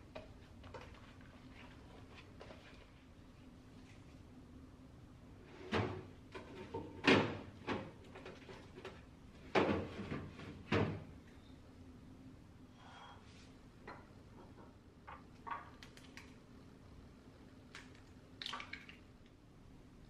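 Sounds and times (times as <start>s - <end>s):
freezer drawer clunks and knocks: 5.7s - 7.9s, 9.5s - 11.1s.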